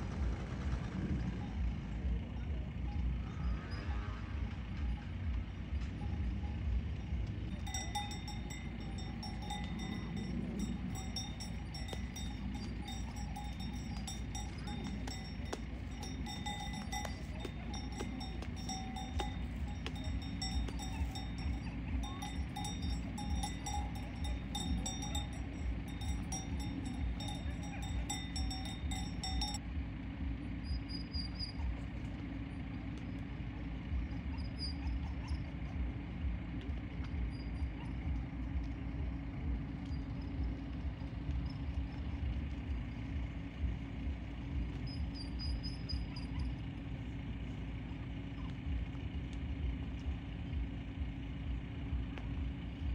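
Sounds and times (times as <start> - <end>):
low steady rumble: 0.0 - 52.9
cowbells clinking: 5.8 - 29.6
faint high chirps: 5.8 - 29.6, 44.6 - 46.9.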